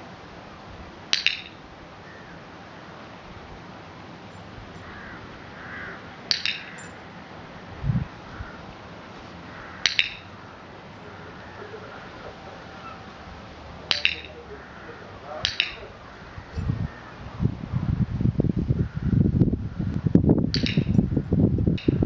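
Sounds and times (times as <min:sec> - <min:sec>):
sharp clicks: 0:06.3 - 0:07.0, 0:09.8 - 0:10.4, 0:13.9 - 0:14.5, 0:15.4 - 0:16.0, 0:19.9 - 0:21.0.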